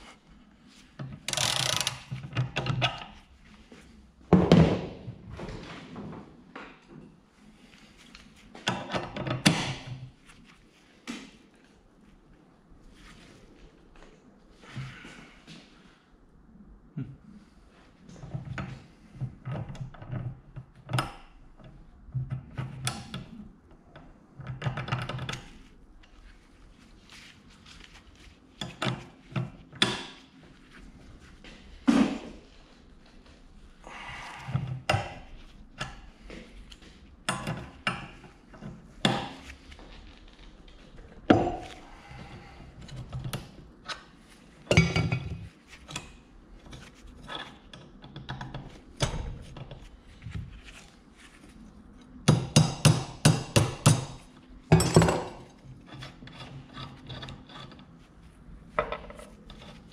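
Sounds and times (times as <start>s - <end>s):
socket wrench clicking: 1.3s - 2.0s.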